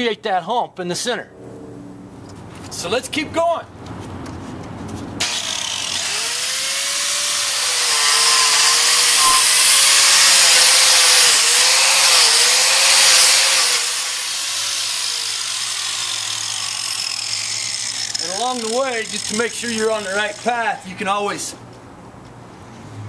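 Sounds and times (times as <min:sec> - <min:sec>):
angle grinder motor whine: 0:05.2 - 0:20.5.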